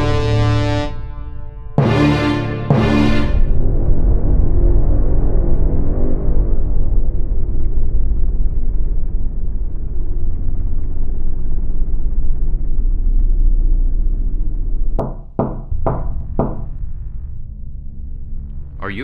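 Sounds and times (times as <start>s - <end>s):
dark ambient drone music: 0.0s - 19.0s
knocks on a door: 15.0s - 16.8s.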